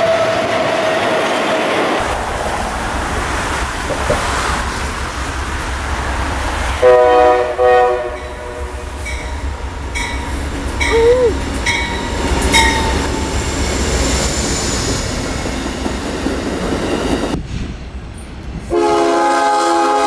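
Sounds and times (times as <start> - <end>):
freight train rolling past: 0.0 - 20.0
passenger train rumbling: 0.0 - 20.0
locomotive horn blasts: 6.8 - 9.4, 18.7 - 20.0.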